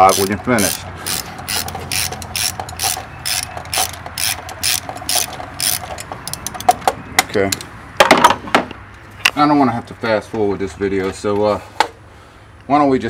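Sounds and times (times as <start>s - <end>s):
socket ratchet clicking: 0.0s - 6.8s.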